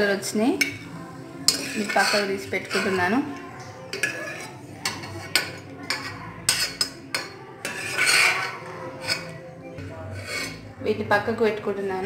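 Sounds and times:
spoon clinking on metal cookware: 0:00.1 - 0:09.5.

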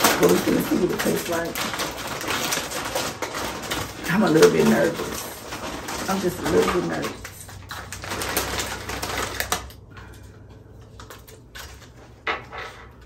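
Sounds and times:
crunchy chips crackling: 0:00.0 - 0:10.3.

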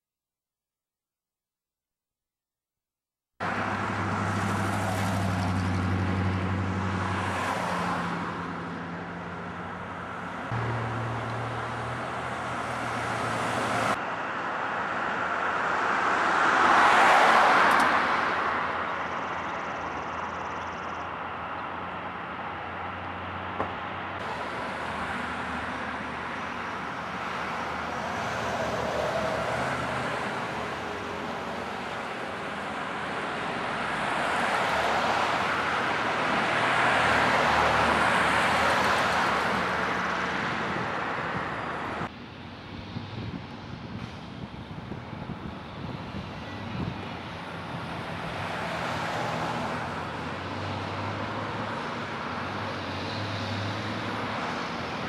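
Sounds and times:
road traffic: 0:03.4 - 0:55.0.

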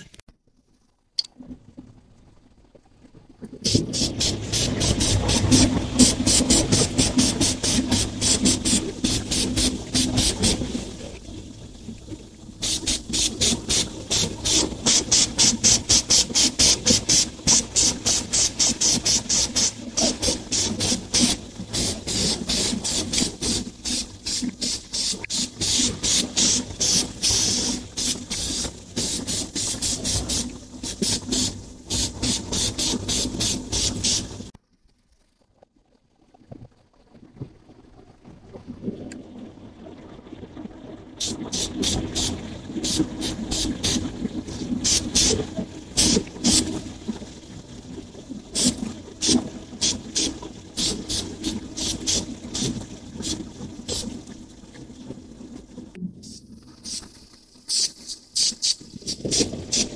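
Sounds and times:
spray can hissing: 0:03.7 - 0:10.6, 0:12.6 - 0:34.4, 0:41.2 - 0:44.0, 0:44.8 - 0:45.4, 0:46.0 - 0:46.7, 0:48.6 - 0:54.0, 0:56.2 - 0:57.1, 0:57.7 - 0:59.9.

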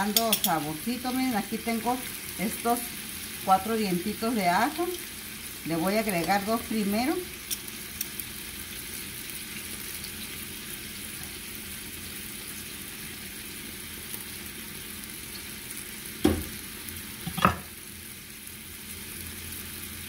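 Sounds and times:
meat sizzling in a frying pan: 0:00.0 - 0:20.0.

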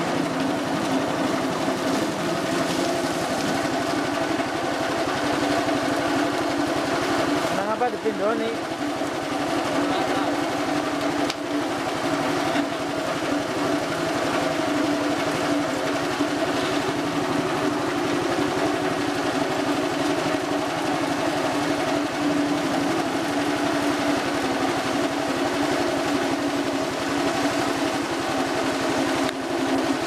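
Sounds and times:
small petrol engine running: 0:00.0 - 0:30.0.

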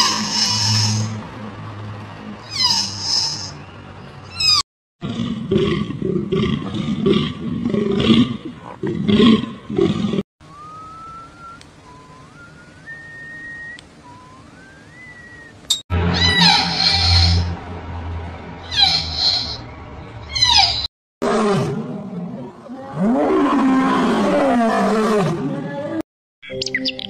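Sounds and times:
animal roaring: 0:05.0 - 0:10.2, 0:16.0 - 0:17.6, 0:20.4 - 0:25.9
thin rising whistle: 0:10.5 - 0:15.6.

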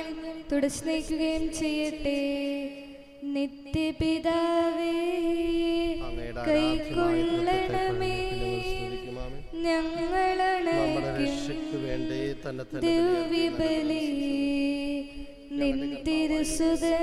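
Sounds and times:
hymn sung slowly: 0:06.0 - 0:14.6
lower vocal part: 0:06.0 - 0:14.9.

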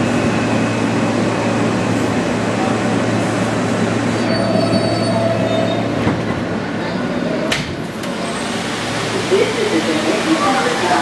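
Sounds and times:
subway train rumble: 0:00.0 - 0:11.0
wheel squeal: 0:04.2 - 0:06.0.

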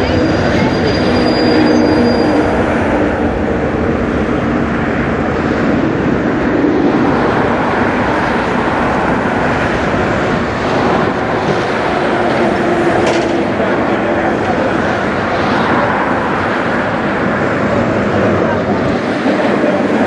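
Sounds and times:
jet engines rushing: 0:00.0 - 0:20.0.

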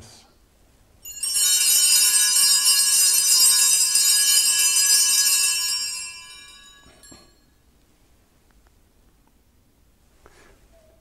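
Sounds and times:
altar bells ringing: 0:01.0 - 0:07.6.

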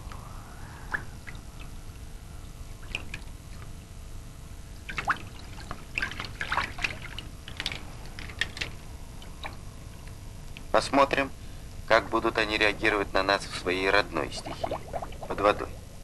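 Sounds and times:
low steady rumble: 0:00.0 - 0:16.0
water splashing and dripping: 0:00.9 - 0:03.8, 0:04.8 - 0:09.6, 0:14.3 - 0:15.5.

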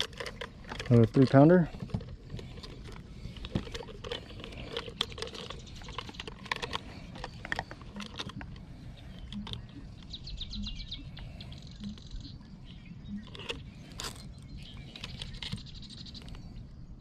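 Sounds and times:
metal tools clicking and clattering: 0:00.0 - 0:08.4.

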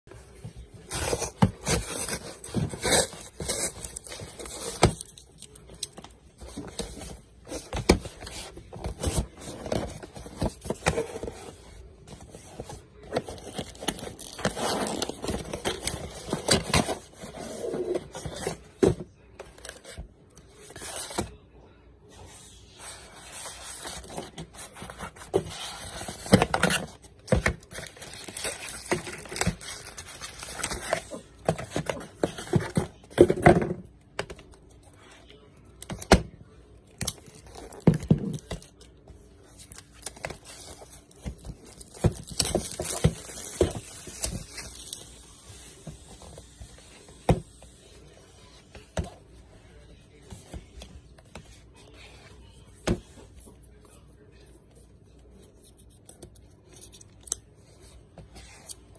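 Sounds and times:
cardboard scraping and rustling: 0:00.1 - 0:05.1, 0:06.2 - 0:21.3, 0:22.8 - 0:33.8.

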